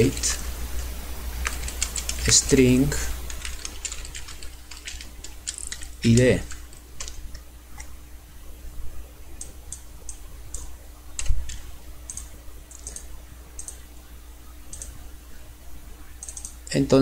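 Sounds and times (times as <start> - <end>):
faint steady hum: 0.0 - 17.0
keyboard and mouse clicking: 3.3 - 7.9, 9.4 - 13.8, 14.7 - 15.0, 16.2 - 16.6.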